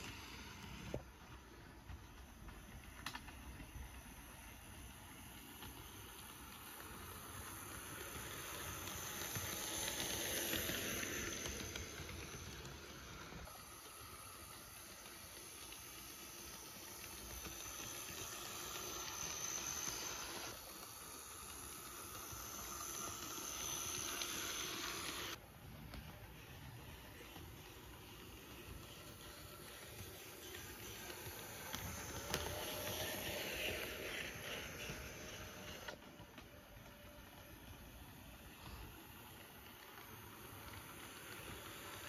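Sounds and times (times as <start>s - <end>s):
model train wheels rattling: 0.0s - 37.4s
small electric motor whirring: 5.5s - 25.4s, 27.2s - 36.1s.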